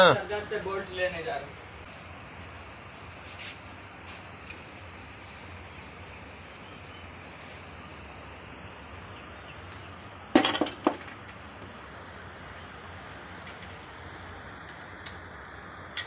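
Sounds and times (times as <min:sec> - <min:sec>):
metal clinking and knocking: 0:10.4 - 0:11.4.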